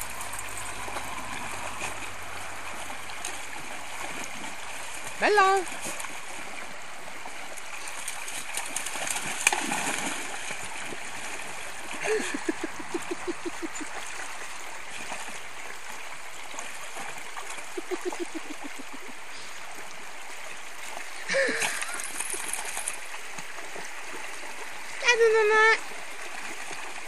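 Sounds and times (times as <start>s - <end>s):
rocky stream running: 0.0s - 27.0s
dog splashing in water: 7.4s - 15.4s, 21.4s - 24.4s.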